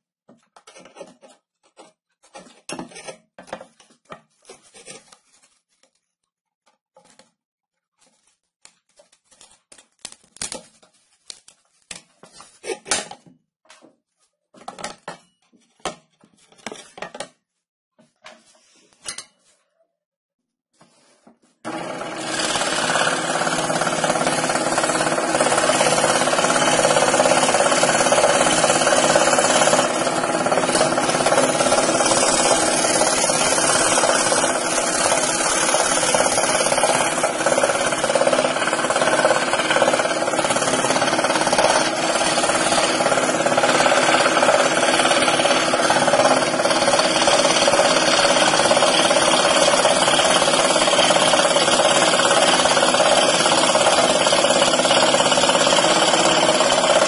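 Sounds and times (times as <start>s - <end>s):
scroll saw cutting wood: 21.6s - 57.0s.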